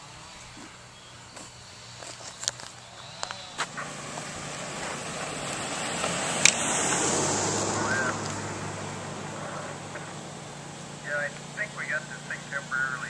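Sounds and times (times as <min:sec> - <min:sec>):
vehicle driving past: 0:00.0 - 0:13.0.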